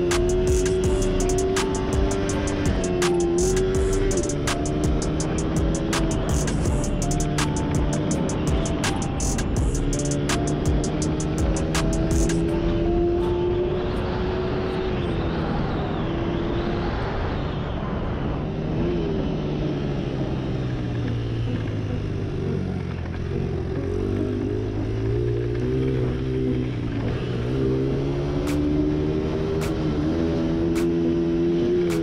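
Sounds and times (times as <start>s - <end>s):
dirt bike engine revving: 0.0s - 13.6s.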